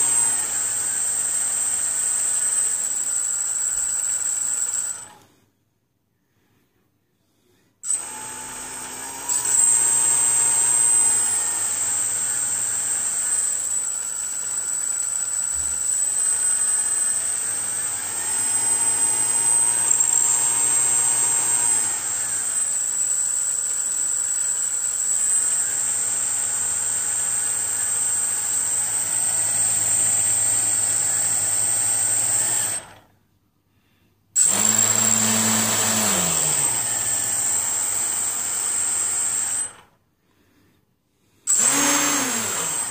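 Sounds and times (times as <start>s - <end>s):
electric motor whine: 7.9s - 33.0s, 34.4s - 39.6s, 41.5s - 42.9s.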